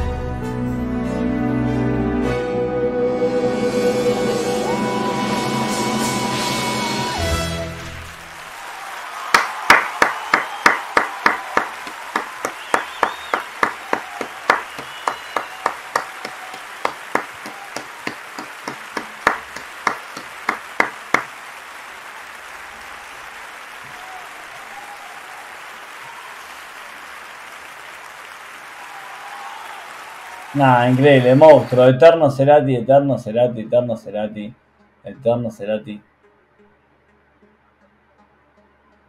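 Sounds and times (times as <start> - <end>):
crowd applause hiss: 4.6 - 32.0
person clapping hands: 7.8 - 31.7.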